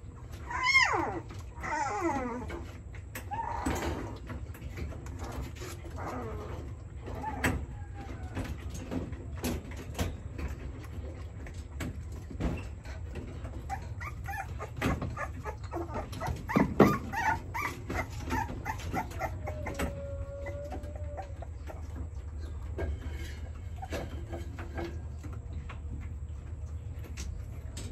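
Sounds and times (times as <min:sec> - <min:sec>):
puppy whimpering and yipping: 0:00.4 - 0:02.6, 0:13.6 - 0:21.9.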